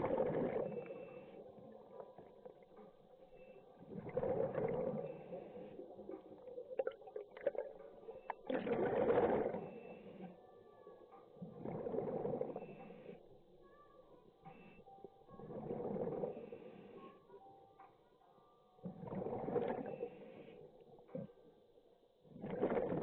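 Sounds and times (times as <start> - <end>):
regulator exhale bubbling underwater: 0.0 - 1.0, 3.9 - 7.7, 8.5 - 9.8, 11.5 - 12.6, 18.9 - 20.0, 22.4 - 23.0.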